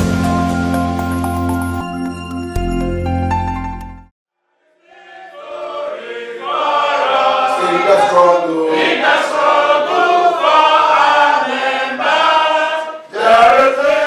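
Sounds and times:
group singing together: 4.6s - 14.0s.

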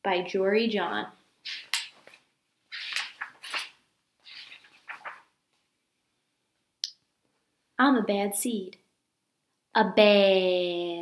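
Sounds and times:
book pages rustling: 1.5s - 5.6s.

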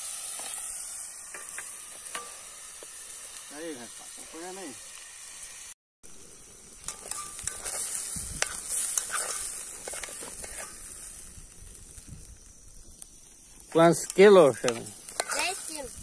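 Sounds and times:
rice sizzling in hot oil: 0.0s - 16.0s
utensil scraping a pot: 6.9s - 10.9s, 15.1s - 15.8s.

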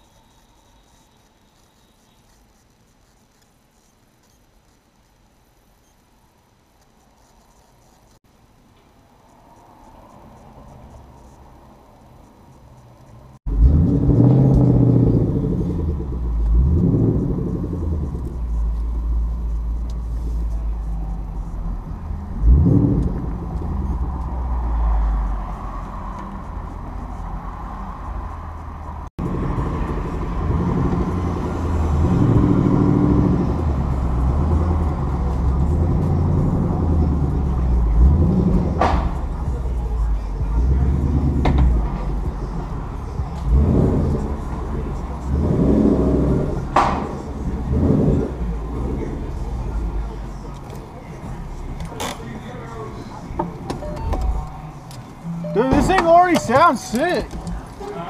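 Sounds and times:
car engine starting: 9.1s - 58.0s
car engine idling with deep rumble: 10.4s - 58.0s
engine revving: 13.4s - 52.6s.

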